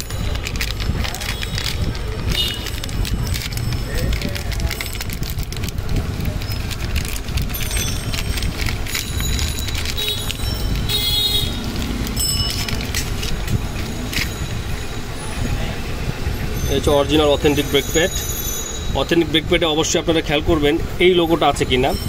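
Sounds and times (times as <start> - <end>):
plastic packaging crinkling: 0.0 - 14.4
street traffic rumble: 0.0 - 22.0.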